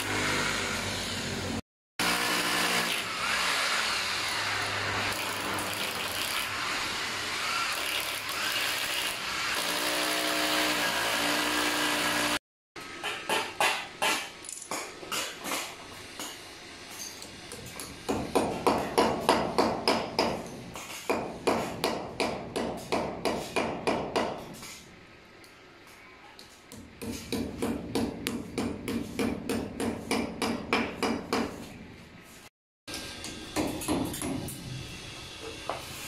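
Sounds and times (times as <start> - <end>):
hammer striking concrete: 13.0 - 16.4, 17.5 - 24.6, 26.7 - 31.6, 33.5 - 34.6.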